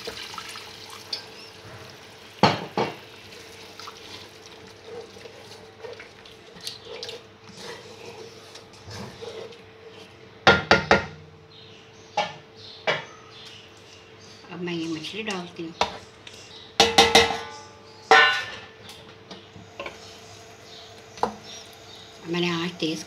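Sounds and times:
liquid sloshing and bubbling in pot: 0:00.0 - 0:10.2
spatula knocking on pot: 0:16.8 - 0:17.4.

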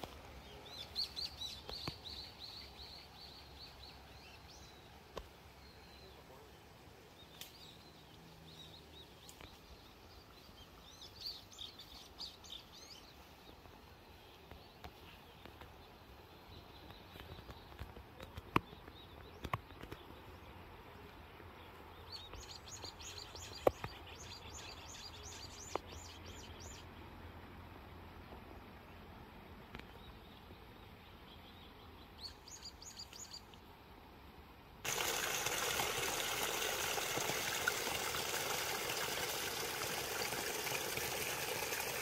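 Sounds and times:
small songbirds singing: 0:00.0 - 0:05.0, 0:05.6 - 0:27.0, 0:29.5 - 0:33.6
faint outdoor hiss: 0:00.0 - 0:42.0.

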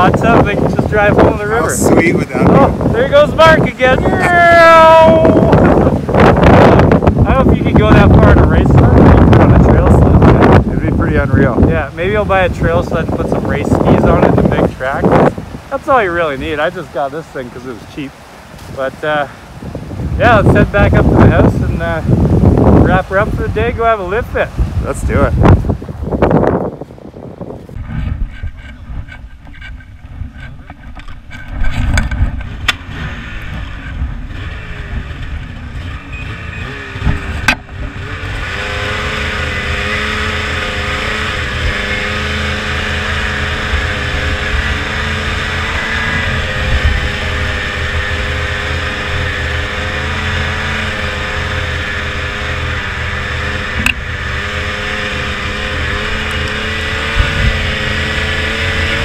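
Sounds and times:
snowmobile engine running: 0:00.0 - 0:17.4, 0:20.0 - 0:25.8, 0:32.2 - 0:59.0.

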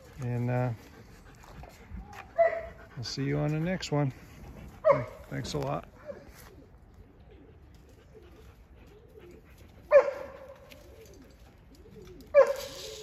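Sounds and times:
pigeons cooing: 0:00.0 - 0:13.0
dog barking: 0:02.4 - 0:02.8, 0:04.8 - 0:05.2, 0:09.9 - 0:10.6, 0:12.3 - 0:12.8.

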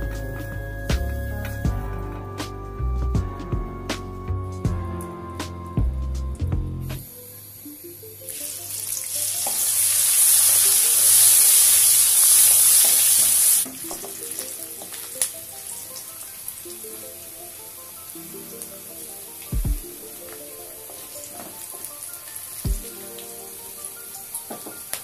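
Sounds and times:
onions sizzling in oil: 0:07.0 - 0:25.0.

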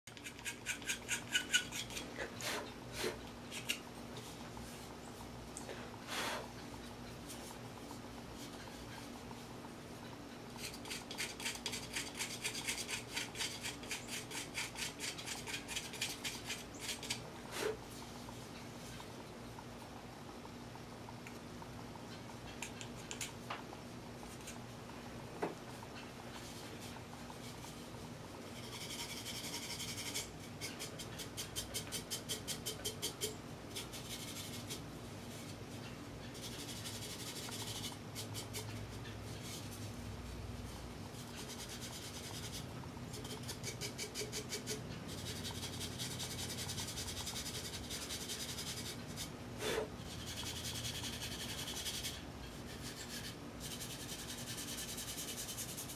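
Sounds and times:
pointed tool scratching: 0:00.1 - 0:03.8, 0:10.6 - 0:17.8, 0:28.5 - 0:34.8, 0:36.2 - 0:39.8, 0:41.2 - 0:55.9.

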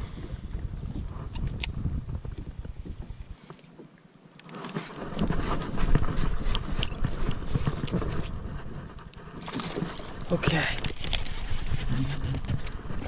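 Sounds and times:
wind rumble on microphone: 0:00.0 - 0:03.4, 0:04.7 - 0:13.0
fishing gear clicking and knocking: 0:04.4 - 0:13.0.

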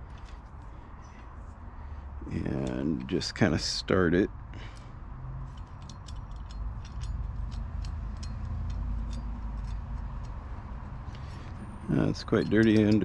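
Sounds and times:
small metal hardware clicking: 0:04.6 - 0:13.0.

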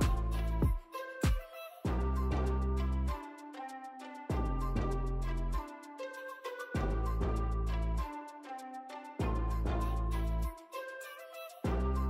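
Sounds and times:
light tune with bass notes: 0:00.0 - 0:00.8, 0:01.9 - 0:03.2, 0:04.3 - 0:05.6, 0:06.8 - 0:08.1, 0:09.2 - 0:10.6.

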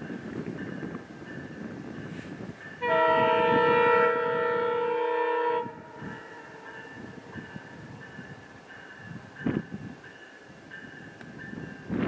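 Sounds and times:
train horn blast: 0:02.8 - 0:06.6.

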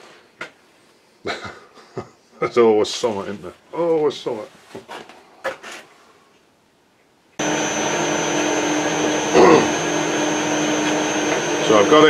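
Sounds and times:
metal lathe humming and whining: 0:07.4 - 0:12.0.

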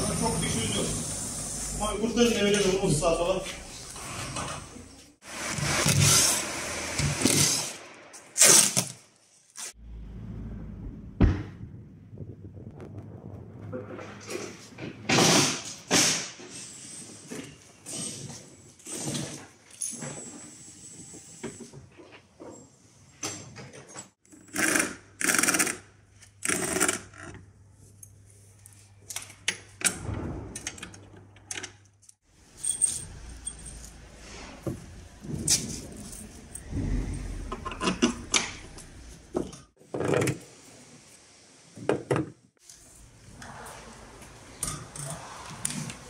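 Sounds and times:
clinks and knocks of tools: 0:30.6 - 0:34.0.

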